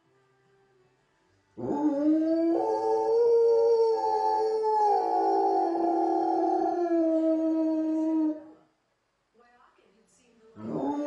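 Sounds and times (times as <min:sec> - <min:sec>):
dog howling: 0:01.6 - 0:08.6, 0:10.6 - 0:11.0.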